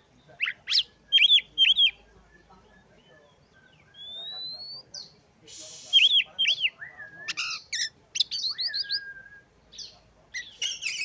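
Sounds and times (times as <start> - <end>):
bird chirping and whistling: 0.7 - 2.0, 3.6 - 4.8, 5.9 - 9.4.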